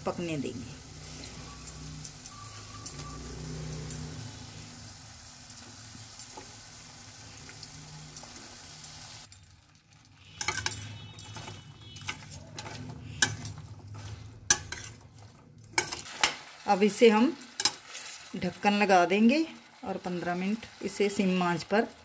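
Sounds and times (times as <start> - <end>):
vegetables sizzling in pan: 0.0 - 22.0
spoon scraping against pan: 10.2 - 16.5, 17.4 - 18.3.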